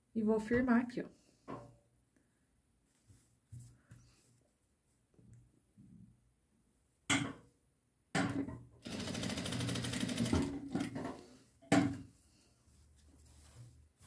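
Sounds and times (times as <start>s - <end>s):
sewing machine stitching: 8.8s - 11.0s.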